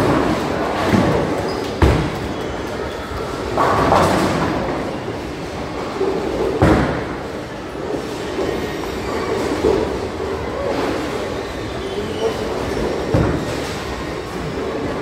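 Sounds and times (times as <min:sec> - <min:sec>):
bowling balls rumbling down lanes: 0:00.0 - 0:08.4.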